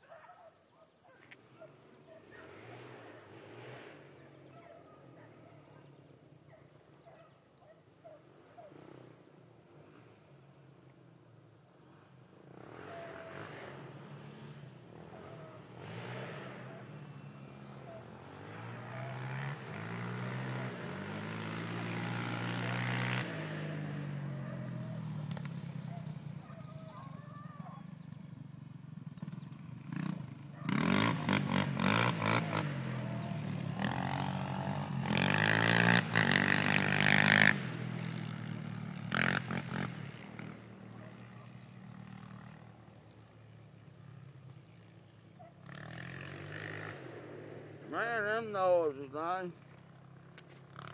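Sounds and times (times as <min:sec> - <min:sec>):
beagles baying: 0:00.0 - 0:03.4, 0:04.2 - 0:08.9, 0:14.9 - 0:15.8, 0:16.4 - 0:21.3, 0:24.1 - 0:28.2, 0:30.5 - 0:35.9, 0:45.3 - 0:46.5.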